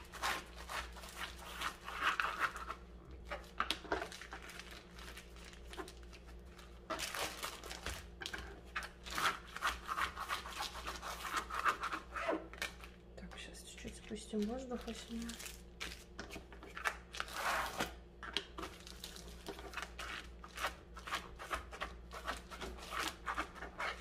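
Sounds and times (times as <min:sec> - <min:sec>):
plastic bag crinkling: 0:03.4 - 0:08.2, 0:14.3 - 0:16.2.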